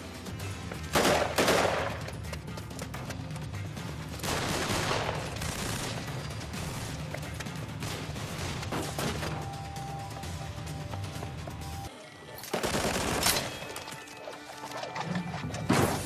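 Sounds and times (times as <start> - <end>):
rapid gunfire: 0.9 - 2.0, 4.2 - 7.0, 12.5 - 13.4.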